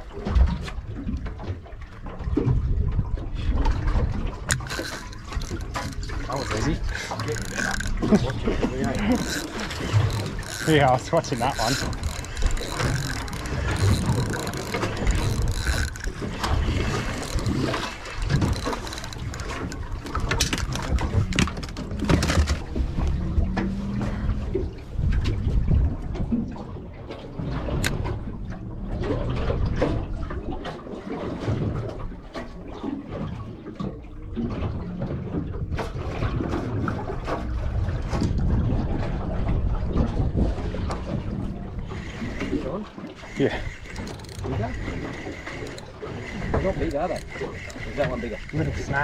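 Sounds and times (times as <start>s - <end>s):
water sloshing against boat hull: 0.0s - 49.0s
wind rumbling on microphone: 0.0s - 49.0s
fishing reel whirring and clicking: 4.4s - 23.3s, 41.7s - 49.0s.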